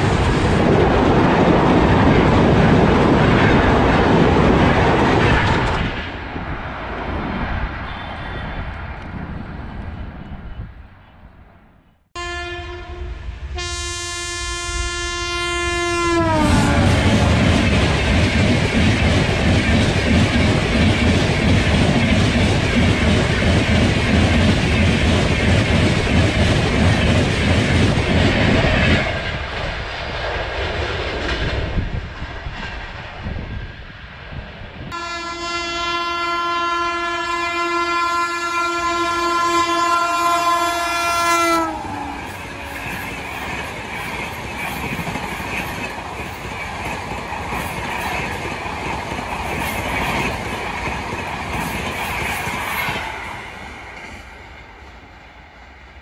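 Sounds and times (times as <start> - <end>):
train passing with rail clatter: 0.0 - 56.0
locomotive air horn: 7.9 - 8.6, 12.1 - 17.4, 34.9 - 42.8.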